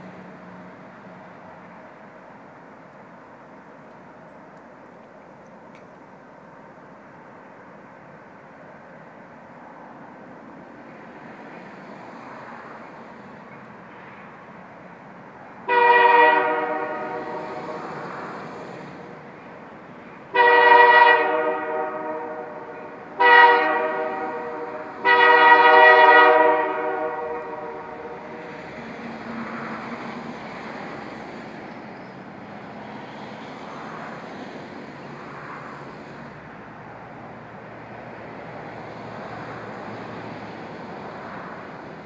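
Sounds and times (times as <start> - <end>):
low rumble of diesel locomotive: 0.0 - 42.0
locomotive air horn blasts: 15.6 - 19.4, 20.2 - 31.4.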